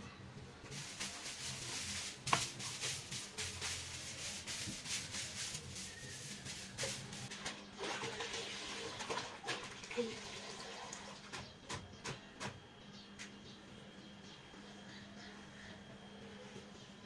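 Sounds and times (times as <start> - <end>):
broom sweeping wet floor: 0.7 - 7.9.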